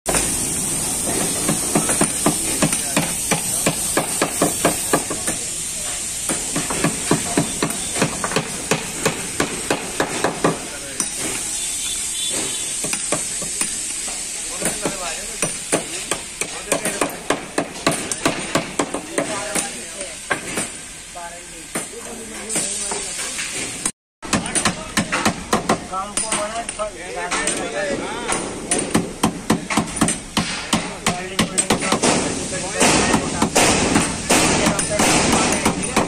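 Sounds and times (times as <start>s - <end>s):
steady high hiss: 0.1s - 23.9s, 24.6s - 36.0s
hammering on wood: 1.4s - 5.4s, 6.2s - 11.4s, 12.8s - 13.8s, 14.6s - 19.7s, 24.2s - 26.7s, 28.3s - 36.0s.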